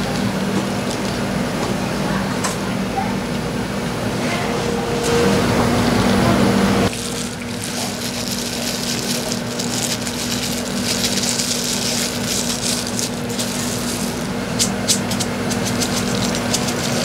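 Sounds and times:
kitchen machinery humming: 0.0s - 17.0s
high crackle: 6.9s - 17.0s.

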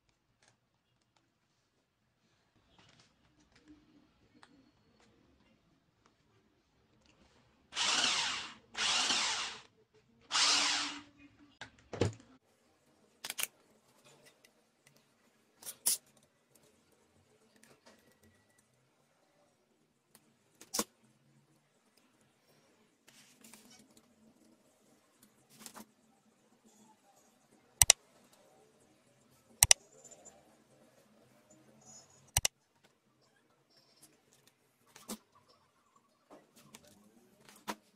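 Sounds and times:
small electric motor whirring: 7.8s - 9.7s, 10.3s - 11.1s.

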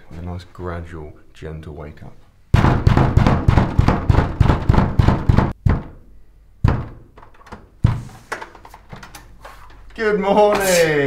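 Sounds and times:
fist pounding on door: 2.5s - 6.0s, 6.6s - 7.2s.

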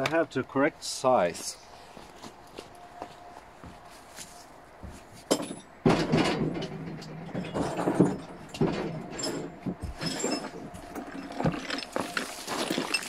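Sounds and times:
hand tools clicking and clattering: 4.9s - 13.0s.

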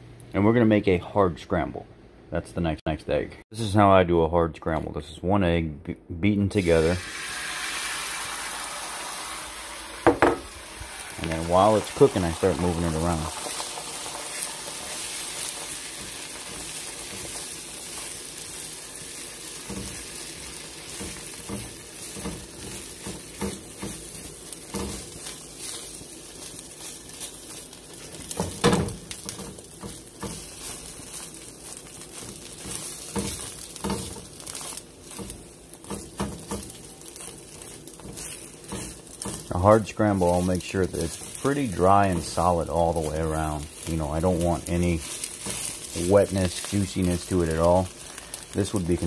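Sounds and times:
egg sizzling in a frying pan: 6.5s - 49.0s
spatula knock: 10.0s - 10.5s
spatula scraping a pan: 14.3s - 49.0s.

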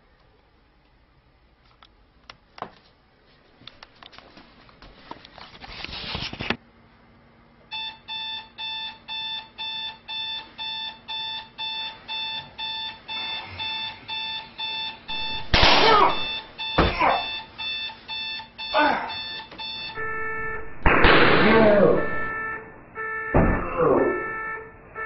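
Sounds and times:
alarm clock beeping: 7.7s - 25.0s
burst of noise with voice: 15.5s - 16.3s, 21.0s - 22.2s.

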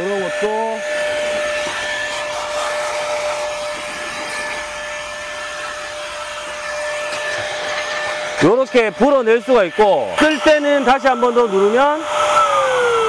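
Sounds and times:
air gun motor whine: 0.0s - 13.0s
rush of blown air: 12.0s - 13.0s.

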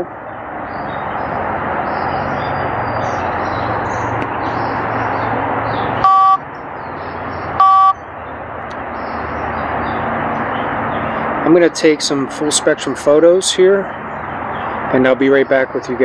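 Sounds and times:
rushing background noise: 0.0s - 16.0s
short electronic beeps: 6.0s - 6.4s, 7.6s - 8.0s.

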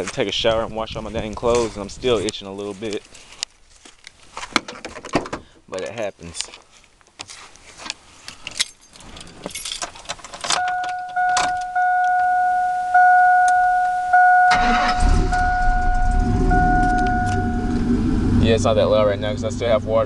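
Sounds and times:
keys jingling: 8.4s - 12.4s
two-tone dashboard warning chime: 10.6s - 18.0s
truck engine starting and running: 10.6s - 20.0s
clicks: 15.3s - 17.8s.

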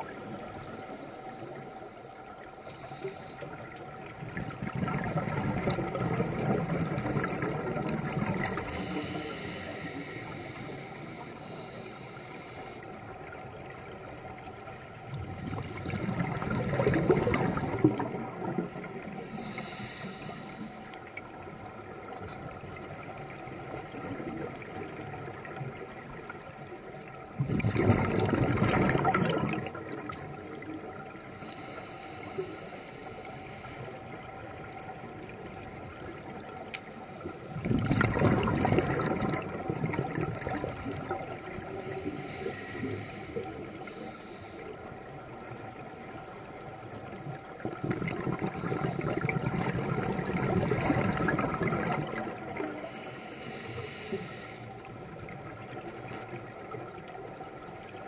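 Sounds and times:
steady regulator hiss: 0.4s - 4.0s, 8.4s - 13.3s, 19.0s - 21.2s, 31.2s - 34.2s, 40.8s - 45.0s, 52.6s - 55.4s
bubbling exhalation underwater: 15.4s - 18.6s, 27.4s - 30.1s, 37.6s - 41.2s, 47.6s - 52.6s.

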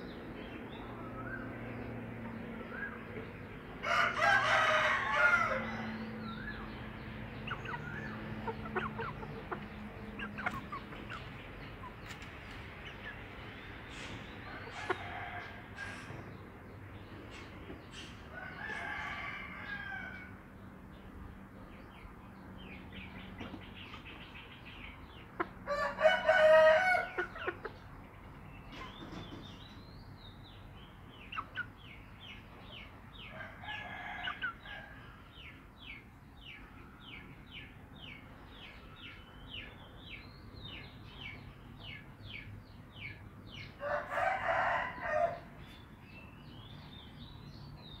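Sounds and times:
rooster crowing: 3.8s - 6.5s, 18.4s - 20.3s, 25.7s - 27.2s, 43.8s - 45.5s.

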